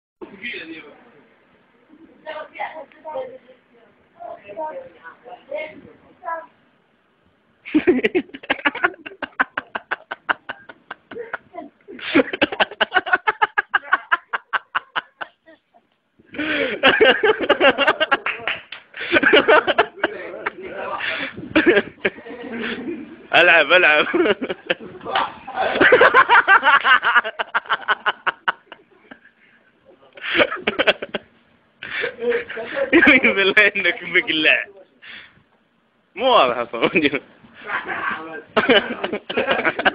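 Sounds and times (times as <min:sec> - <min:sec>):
hearty laughter: 0:07.7 - 0:15.4, 0:16.3 - 0:20.4, 0:21.1 - 0:23.2, 0:24.0 - 0:29.3, 0:37.0 - 0:39.9
man laughing: 0:07.7 - 0:15.4.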